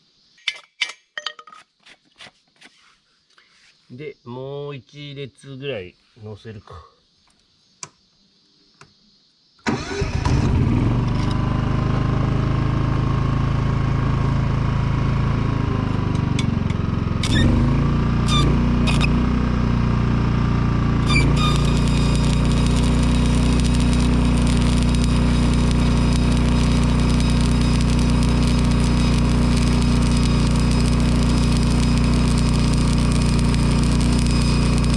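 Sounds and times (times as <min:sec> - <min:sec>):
welder engine running: 0:10.4 - 0:34.9
welding arc cracks: 0:17.2 - 0:19.1, 0:21.0 - 0:34.9
welding arc sizzling: 0:17.2 - 0:19.2, 0:21.0 - 0:34.9.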